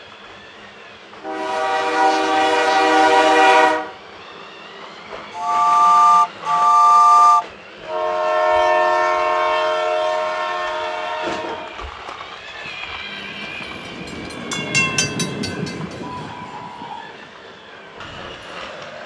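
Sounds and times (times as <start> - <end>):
electronic toy train whistle: 1.2 - 4.0, 5.3 - 11.7.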